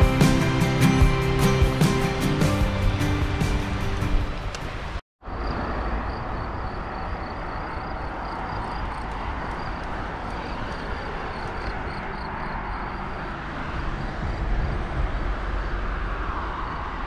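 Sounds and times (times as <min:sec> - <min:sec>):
bicycle riding rush: 0:08.1 - 0:17.0.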